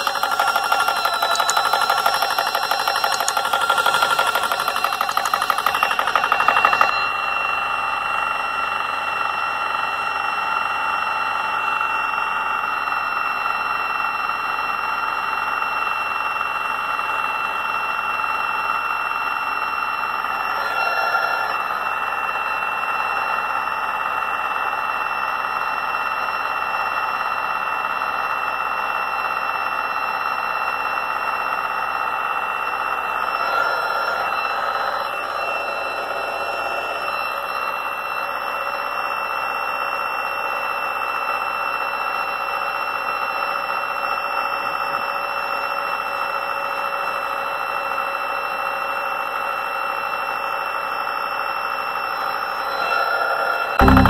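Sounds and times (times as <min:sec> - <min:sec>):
compressor piston chugging: 0:00.0 - 0:07.3.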